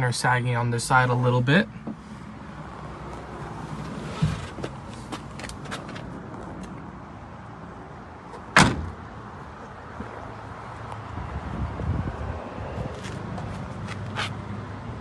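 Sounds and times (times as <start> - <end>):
truck door shutting thud: 4.1 - 4.8, 8.3 - 9.0.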